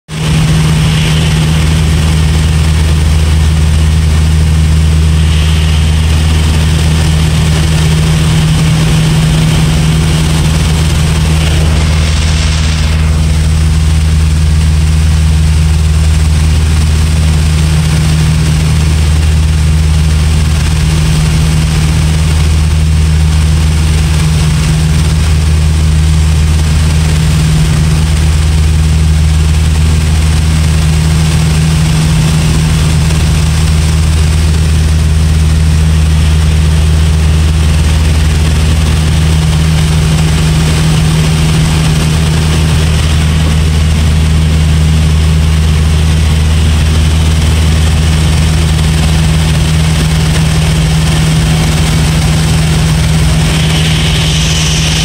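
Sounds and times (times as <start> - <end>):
light aircraft engine droning: 0.1 - 55.0
high hiss: 52.5 - 55.0.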